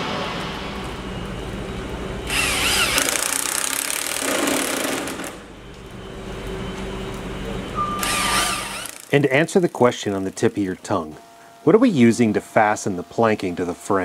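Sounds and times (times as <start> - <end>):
power drill driving screw: 2.3 - 5.4, 8.0 - 9.2.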